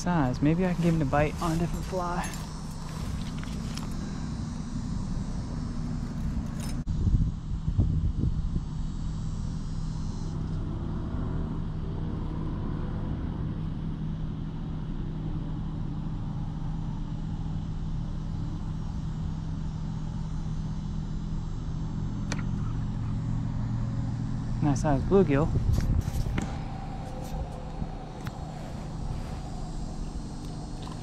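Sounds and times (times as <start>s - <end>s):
motor humming: 0.0s - 7.3s, 16.2s - 31.0s.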